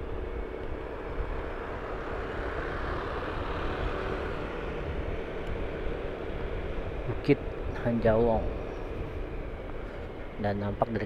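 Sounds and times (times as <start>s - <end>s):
road and wind rumble: 0.0s - 11.0s
vehicle engine hum: 0.0s - 11.0s.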